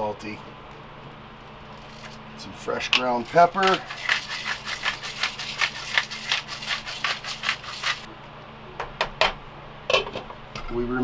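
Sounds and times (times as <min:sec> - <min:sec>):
pepper grinder clicking: 0:03.0 - 0:08.1.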